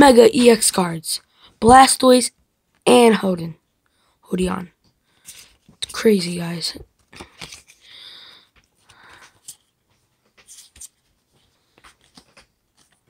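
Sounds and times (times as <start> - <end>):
cards sliding and rubbing: 5.2 - 6.1, 7.0 - 7.9, 8.6 - 13.0.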